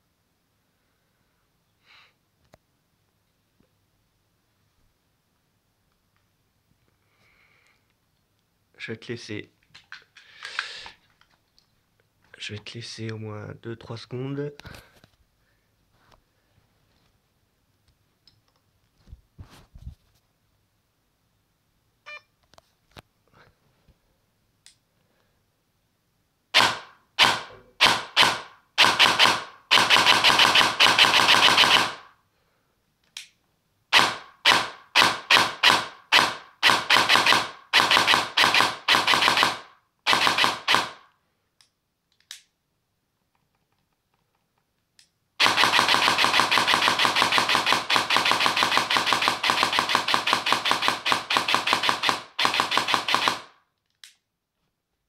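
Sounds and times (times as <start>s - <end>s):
airsoft gun gearbox firing bursts: 26.6s - 32.1s, 33.9s - 41.0s, 45.4s - 53.6s.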